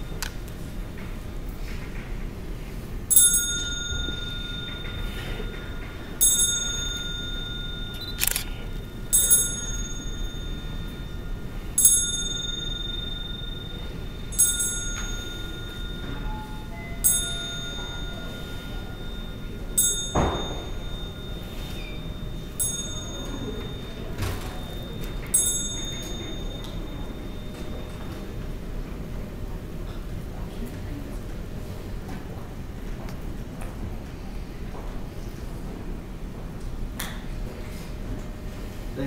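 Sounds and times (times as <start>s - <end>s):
handbell ringing: 3.1s - 28.4s.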